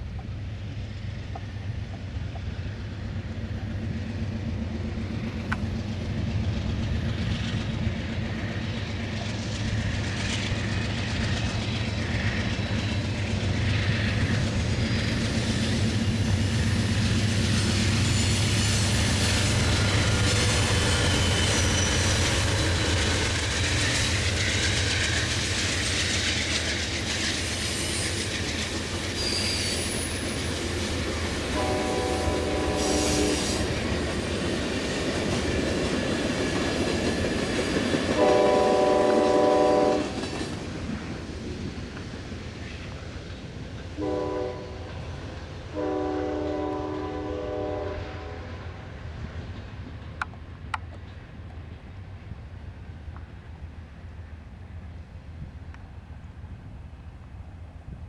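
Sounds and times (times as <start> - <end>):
diesel locomotive rumble: 0.0 - 58.0
train wheels on rails: 0.0 - 58.0
thin wheel squeals: 26.9 - 30.3.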